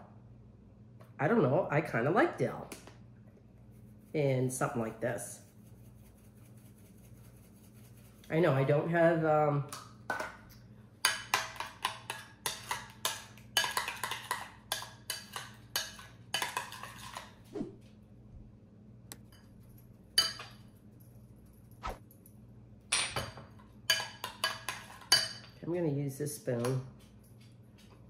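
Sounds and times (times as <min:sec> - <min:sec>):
utensil clinking against glass bowl: 0:20.2 - 0:20.6, 0:22.9 - 0:25.6.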